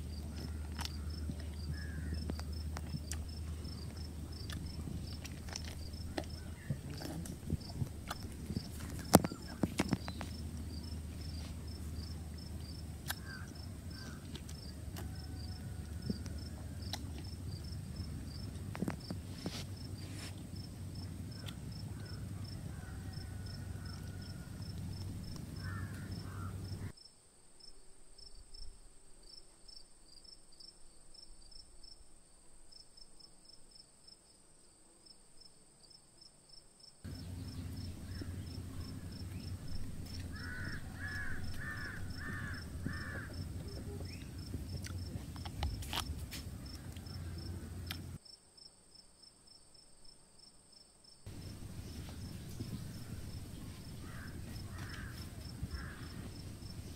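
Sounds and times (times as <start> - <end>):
low background rumble: 0.0 - 26.9, 37.1 - 48.2, 51.3 - 56.9
insects chirping: 0.0 - 56.9.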